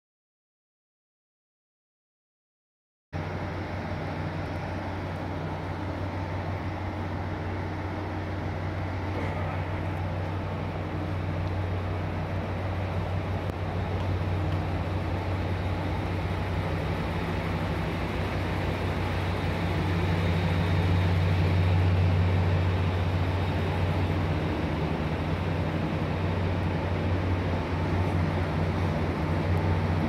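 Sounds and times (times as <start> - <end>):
electric train low hum: 3.2 - 30.0.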